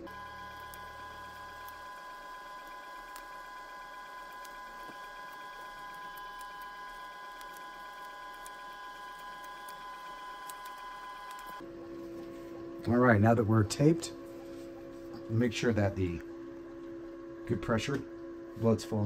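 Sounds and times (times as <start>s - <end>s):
machine whine: 0.0s - 19.0s
tape being handled: 0.6s - 11.6s.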